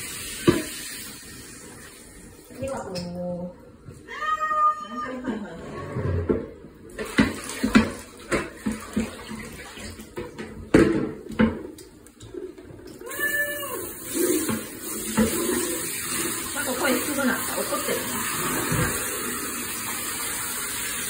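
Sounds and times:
shower spraying water into basin: 0.0 - 3.1, 6.9 - 10.2, 13.0 - 21.0
plastic basin knocking in bathtub: 7.0 - 11.8
cat meowing: 13.0 - 13.9.

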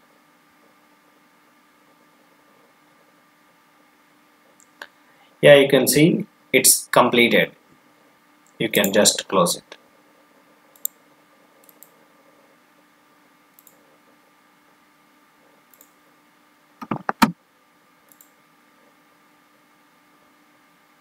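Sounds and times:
faint electrical hum: 0.0 - 21.0
computer mouse and keys clicking: 10.7 - 11.0, 11.6 - 12.0, 13.5 - 14.0, 15.7 - 16.0, 16.8 - 17.4, 18.1 - 18.4.

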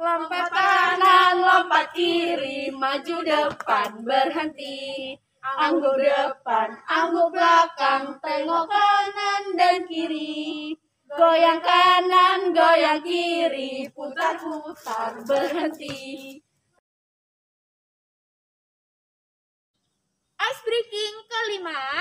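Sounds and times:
young women singing together: 0.0 - 16.4.

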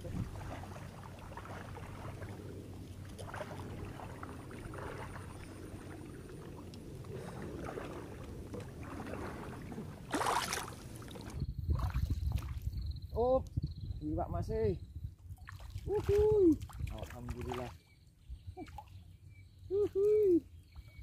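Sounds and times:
small waves lapping: 0.0 - 12.6, 15.4 - 18.0
wind rumble on microphone: 0.0 - 19.4.

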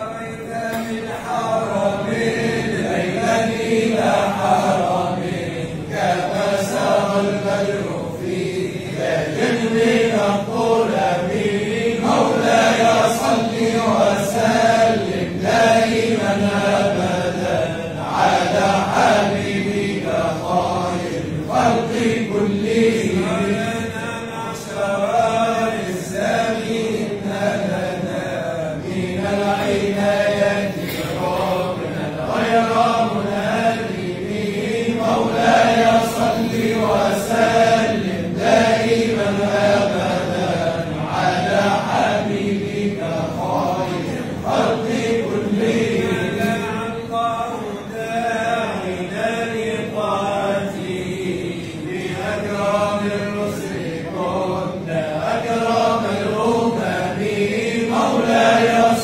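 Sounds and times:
men chanting together: 0.0 - 59.0.

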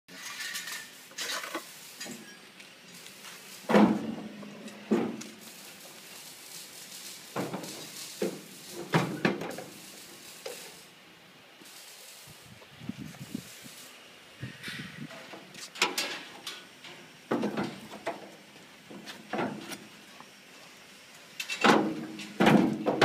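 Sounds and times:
metal clanks and knocks: 3.7 - 5.4, 14.6 - 18.3, 21.4 - 23.0.

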